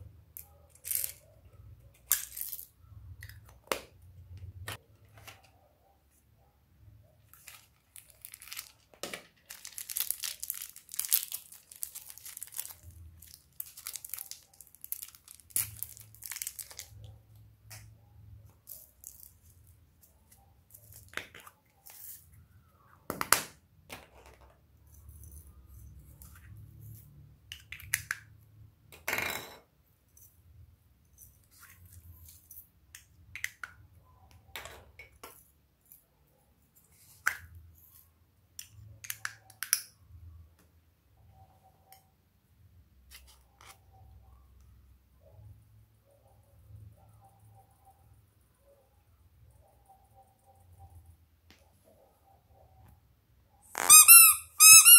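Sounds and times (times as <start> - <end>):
plastic containers crinkling and rattling: 7.4 - 17.1.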